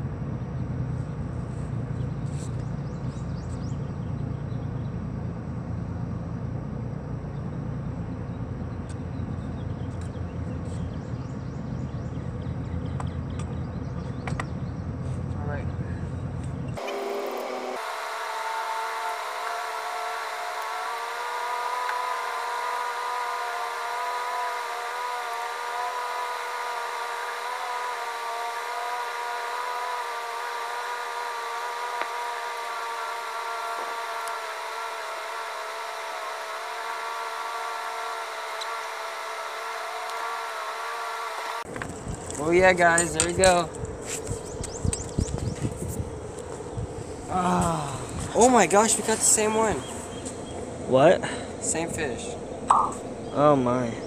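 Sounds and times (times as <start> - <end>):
steady machine drone: 0.0 - 54.0
wavering held tones: 51.6 - 54.0.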